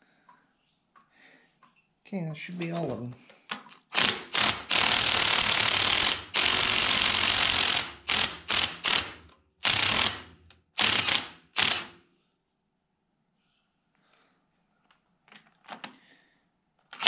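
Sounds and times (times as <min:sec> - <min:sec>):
cordless impact wrench bursts: 0:03.9 - 0:12.0.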